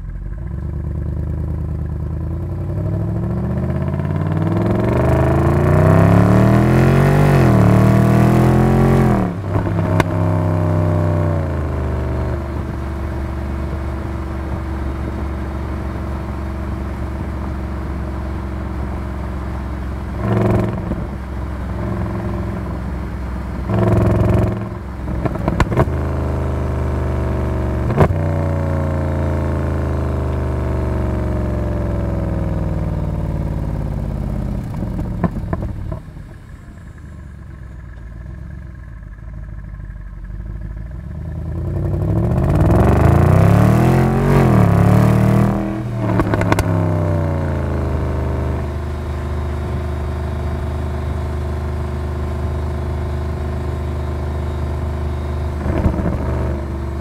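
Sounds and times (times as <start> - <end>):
sports car exhaust drone: 0.0 - 57.0
engine revving: 2.2 - 16.3, 20.1 - 22.9, 23.6 - 36.0, 41.0 - 57.0
exhaust crackling pops: 23.7 - 26.0, 34.6 - 36.5, 46.0 - 46.9, 55.6 - 56.8.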